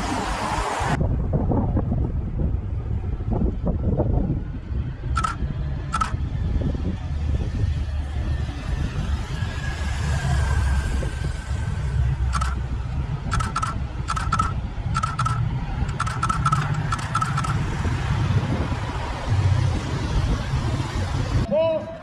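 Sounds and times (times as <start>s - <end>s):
low rumble: 0.9s - 21.5s
motorcycle passing: 8.0s - 21.4s.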